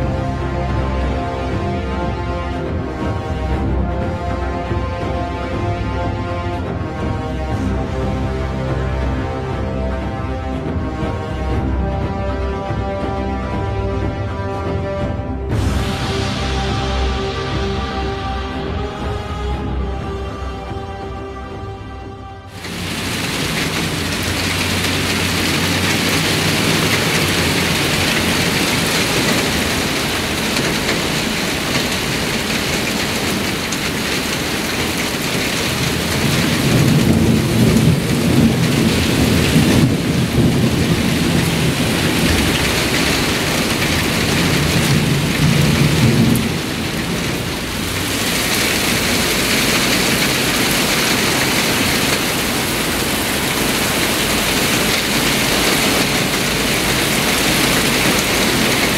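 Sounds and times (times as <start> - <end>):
heavy rain hissing on ground and cars: 0.0 - 21.4, 22.4 - 58.9
low rumble of thunder: 35.8 - 52.1.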